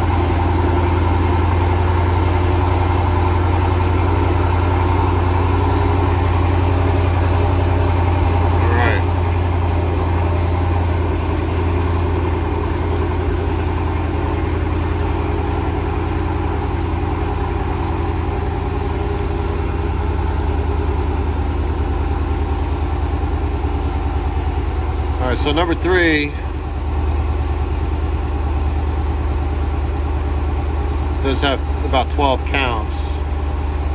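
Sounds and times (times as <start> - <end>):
car engine idling: 0.0 - 33.9.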